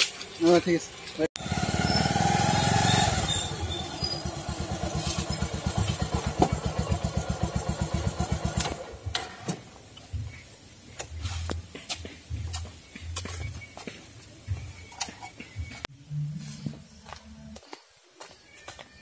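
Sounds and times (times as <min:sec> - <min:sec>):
motorcycle engine idling: 0:00.2 - 0:10.3.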